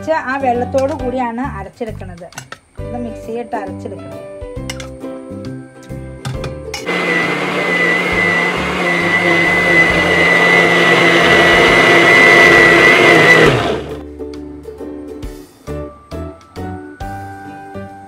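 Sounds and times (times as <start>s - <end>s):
soft background music: 0.0s - 6.9s, 14.0s - 18.0s
mixer grinder whining: 6.8s - 14.0s.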